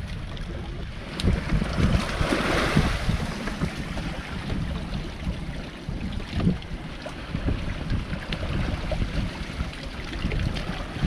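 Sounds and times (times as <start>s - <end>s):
sea water splashing around posts: 0.0s - 11.0s
wind buffeting the microphone: 0.0s - 11.0s.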